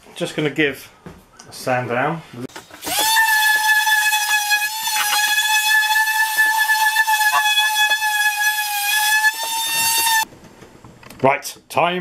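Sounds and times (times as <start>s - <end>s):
electric sander whining on wood: 2.7s - 10.2s.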